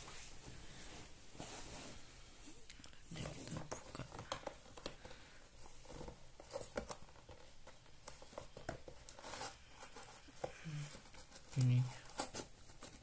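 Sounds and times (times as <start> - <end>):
rustling and scuffing: 0.0 - 2.6.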